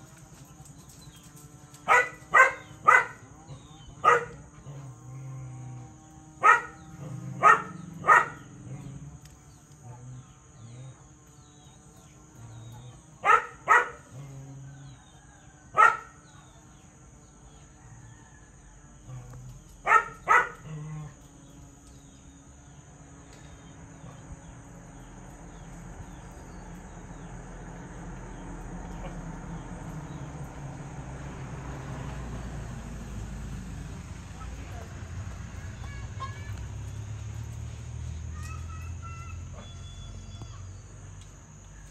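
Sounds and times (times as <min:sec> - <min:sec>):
high insect buzz: 0:00.8 - 0:15.2, 0:18.9 - 0:28.6
dog barking: 0:01.9 - 0:03.2, 0:04.0 - 0:04.4, 0:06.4 - 0:06.8, 0:07.4 - 0:08.5, 0:13.2 - 0:14.1, 0:15.8 - 0:16.2, 0:19.8 - 0:20.7.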